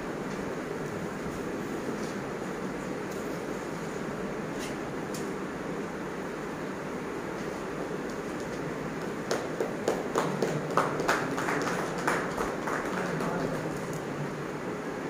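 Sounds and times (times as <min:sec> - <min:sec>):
room hum: 0:00.0 - 0:15.0
hand claps: 0:08.4 - 0:14.1.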